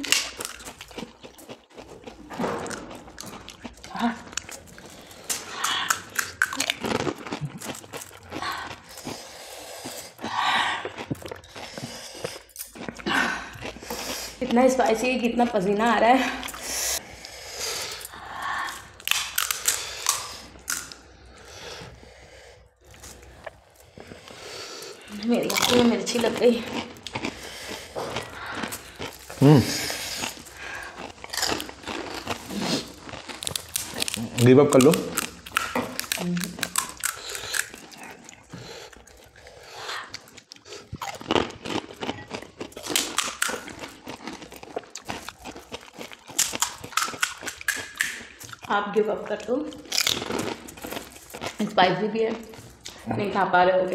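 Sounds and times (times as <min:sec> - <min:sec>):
crisp fried shells cracking: 0:19.0 - 0:21.0, 0:30.3 - 0:37.9, 0:41.1 - 0:48.7, 0:49.8 - 0:51.6.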